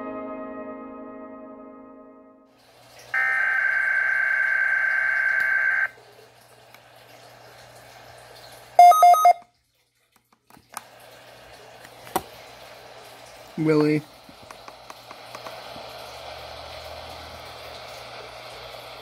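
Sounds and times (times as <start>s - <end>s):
steady electronic tone: 3.2s - 5.9s
radio click: 5.2s - 5.7s
rapid alert beeps: 8.8s - 9.4s
faint radio hiss: 10.7s - 19.0s.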